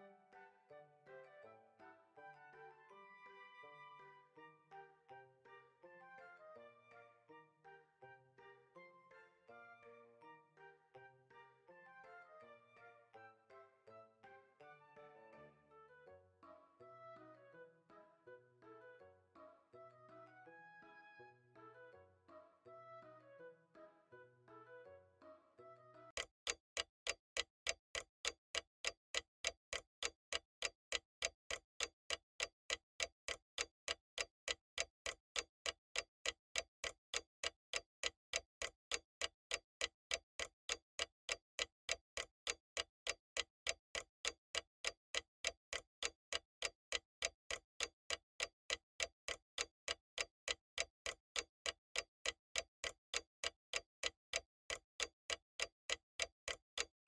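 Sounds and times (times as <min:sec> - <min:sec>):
clock ticking: 0:26.1 - 0:57.0.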